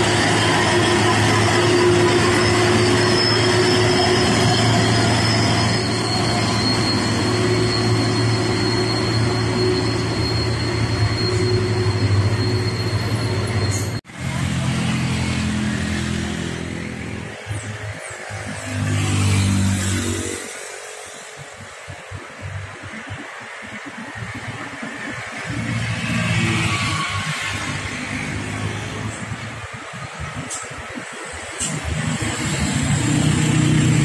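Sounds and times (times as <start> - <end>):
truck diesel engine droning: 0.0 - 21.8
traffic engines: 0.0 - 34.0.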